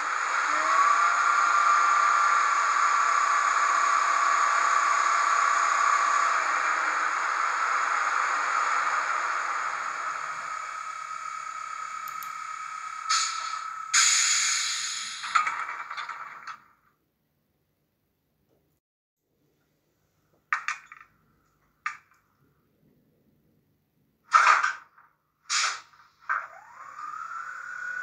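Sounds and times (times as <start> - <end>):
steady hissing with held tone: 8.3 - 15.4
short sharp hiss: 13.1 - 15.4, 25.5 - 26.1.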